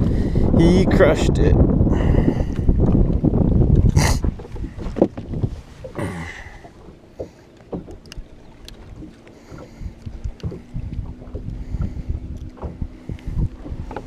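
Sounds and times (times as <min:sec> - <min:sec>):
light clicks and taps of handling: 0:07.3 - 0:10.6.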